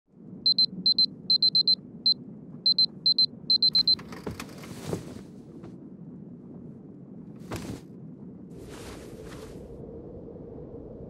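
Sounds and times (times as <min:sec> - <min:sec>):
electronic alarm beeping: 0:00.4 - 0:04.0
bedding rustling: 0:04.4 - 0:05.7, 0:07.4 - 0:07.9, 0:08.6 - 0:09.6.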